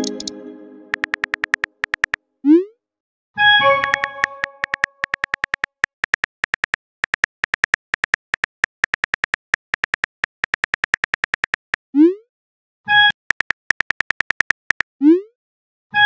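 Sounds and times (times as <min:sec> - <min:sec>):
keyboard tap clicks: 0:00.0 - 0:00.3, 0:00.9 - 0:02.2, 0:03.8 - 0:11.8, 0:13.3 - 0:14.8.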